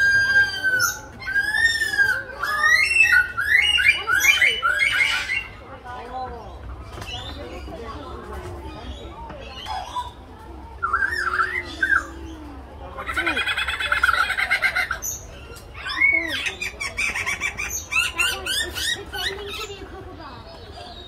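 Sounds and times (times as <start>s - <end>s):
lyrebird singing mimicked calls: 10.8s - 12.4s, 13.0s - 19.9s.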